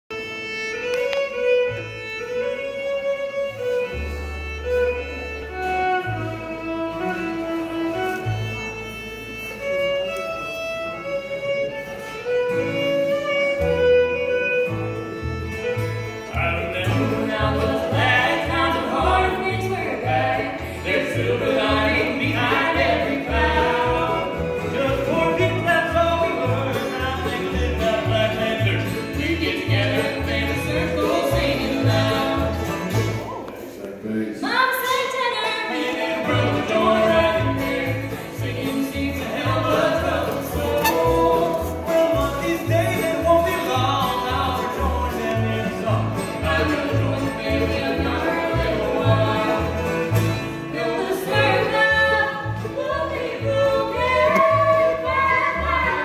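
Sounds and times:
fiddle melody: 0.1 - 33.6, 34.4 - 56.0
bluegrass band playing: 0.1 - 56.0
upright bass notes: 13.6 - 33.3, 36.3 - 56.0.

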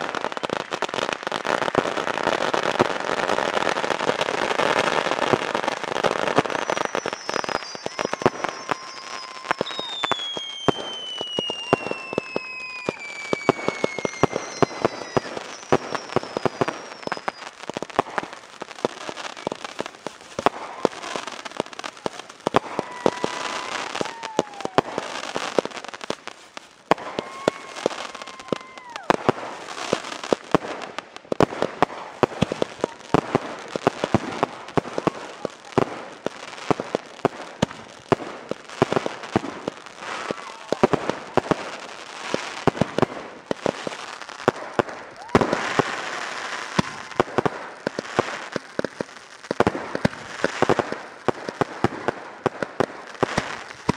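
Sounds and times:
fireworks firing rapid shots: 0.0 - 53.9
firework whistles falling: 6.1 - 17.7, 22.5 - 30.2, 45.1 - 48.3.

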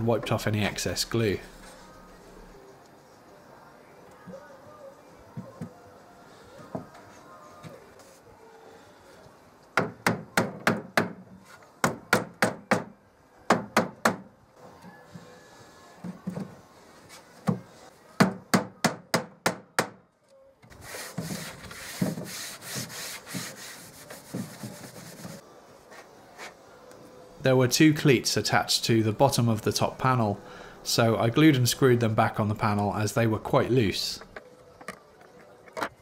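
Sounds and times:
rubbing noise: 20.8 - 26.6.

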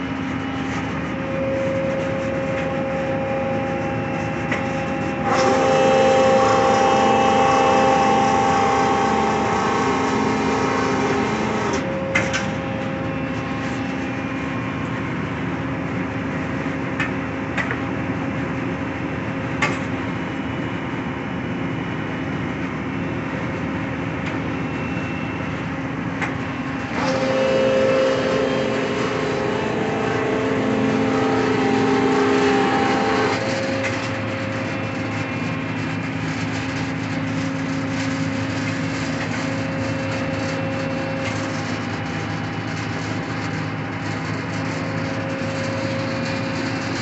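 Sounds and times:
band saw humming: 0.0 - 14.4, 26.5 - 47.0
saw blade cutting wood: 4.6 - 11.8, 26.9 - 34.7.

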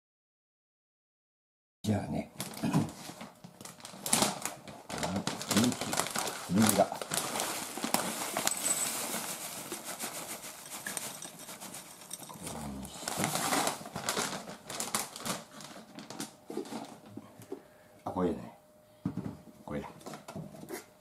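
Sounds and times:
snack packet crinkling: 2.4 - 17.0
dry pieces pattering into glass bowl: 5.0 - 14.6.

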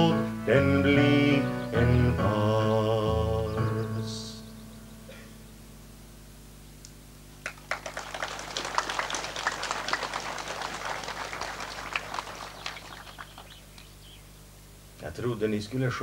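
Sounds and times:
low steady hum: 0.0 - 16.0
audience applauding: 7.4 - 14.0.

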